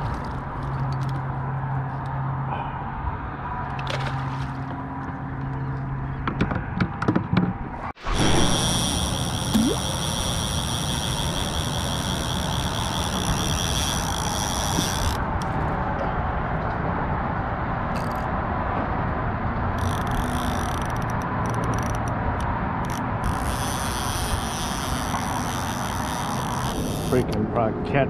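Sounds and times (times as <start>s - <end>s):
road traffic rumble: 0.0s - 28.0s
high whine: 7.8s - 10.6s.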